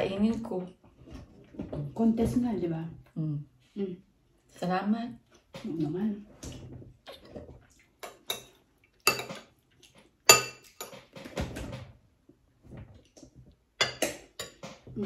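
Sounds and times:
metal spoon clinking on plates: 0:08.0 - 0:09.5, 0:10.3 - 0:11.2, 0:13.8 - 0:14.8.

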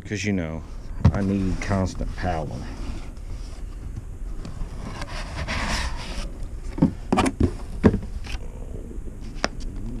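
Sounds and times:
cardboard lid scraping: 0:04.4 - 0:07.6.

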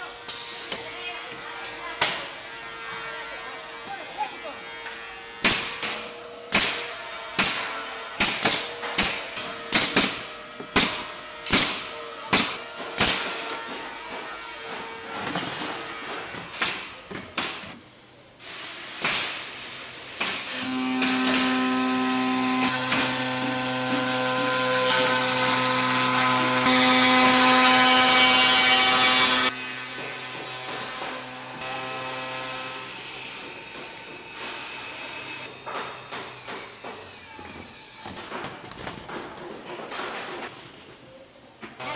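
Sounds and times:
pneumatic nailer firing: 0:05.4 - 0:17.8, 0:18.4 - 0:40.5
woodworking machine humming: 0:20.5 - 0:38.0.

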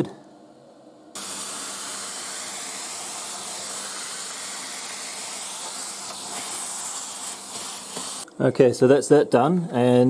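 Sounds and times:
cnc router spindle hissing: 0:01.2 - 0:08.3.

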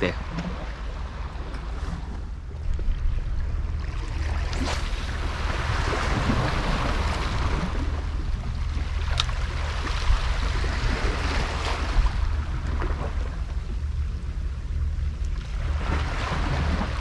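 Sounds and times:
wind buffeting microphone: 0:00.0 - 0:14.2
waves washing against rocks: 0:04.4 - 0:12.6.

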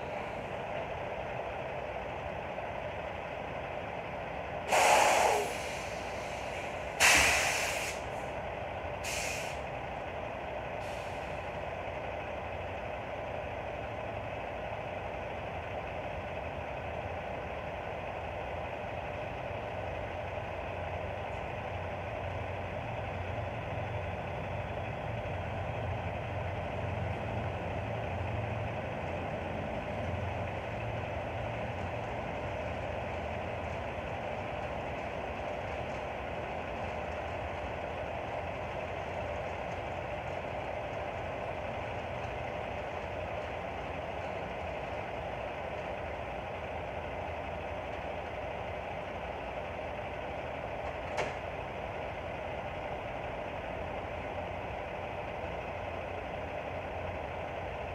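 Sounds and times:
truck engine idling: 0:00.0 - 0:57.9
air brakes hissing: 0:04.6 - 0:08.3, 0:09.0 - 0:09.8, 0:10.8 - 0:11.6.

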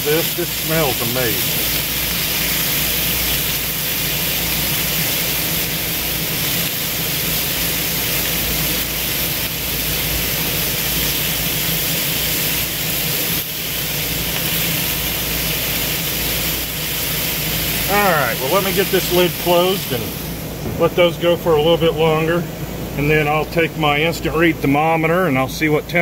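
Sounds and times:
chicken sizzling on griddle: 0:00.0 - 0:20.4.

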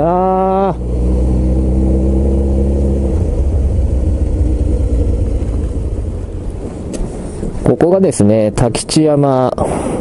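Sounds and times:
motorcycle engine running: 0:00.0 - 0:07.6
wind and road noise: 0:00.0 - 0:10.0.

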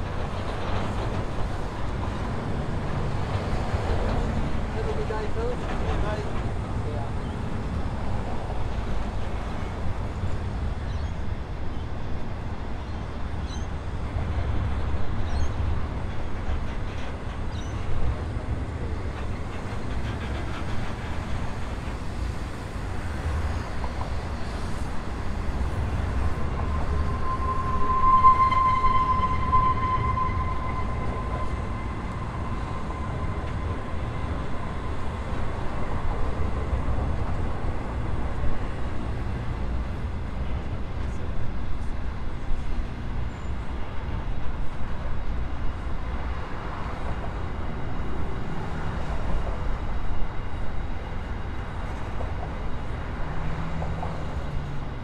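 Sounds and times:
train wheels rumbling on rail: 0:00.0 - 0:55.0
wheel squeal: 0:25.8 - 0:35.9.

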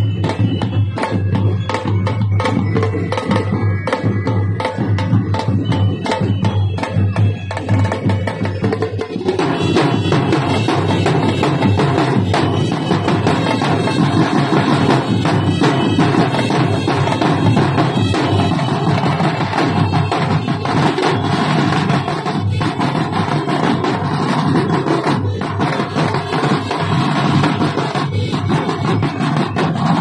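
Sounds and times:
marching snare drums: 0:00.0 - 0:30.0.

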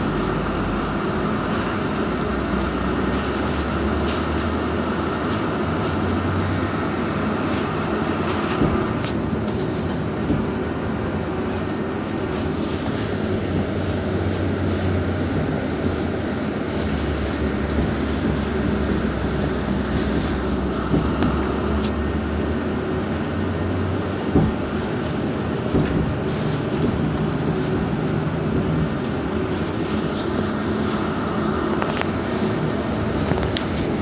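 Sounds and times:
steady higher whine: 0:00.0 - 0:34.0
tyre and body rumble: 0:23.4 - 0:31.3.

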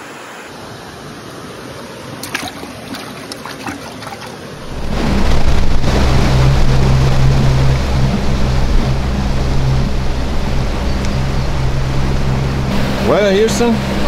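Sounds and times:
water rushing against hull: 0:01.5 - 0:14.0
outboard motor running: 0:02.2 - 0:14.0
wind noise: 0:02.4 - 0:13.1.

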